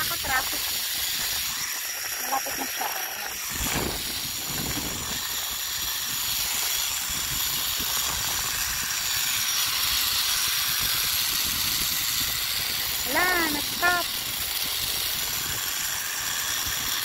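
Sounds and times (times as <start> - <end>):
zipline trolley on steel cable: 0.0 - 17.0
wind rushing past microphone: 3.5 - 9.3.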